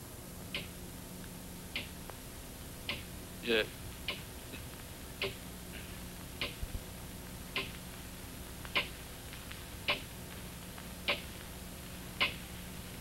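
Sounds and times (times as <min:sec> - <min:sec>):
faint steady hum: 0:00.0 - 0:13.0
clock ticking: 0:05.2 - 0:05.4.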